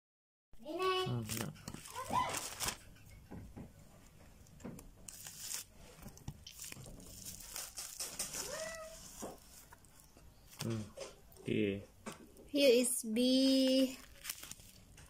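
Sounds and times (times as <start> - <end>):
packaging crinkling and tearing: 1.1 - 2.9, 5.1 - 10.8, 13.5 - 15.0.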